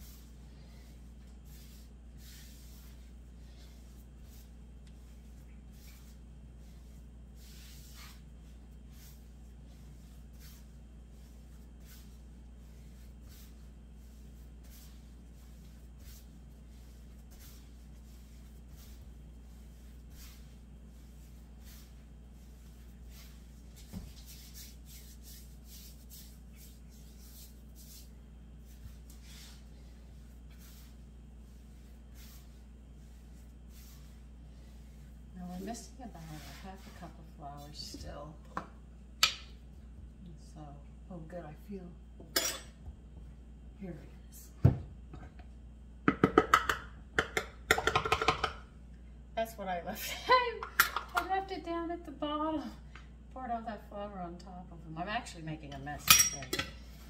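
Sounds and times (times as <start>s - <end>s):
hands kneading dough: 0.0s - 40.4s
steady low hum: 0.0s - 57.0s.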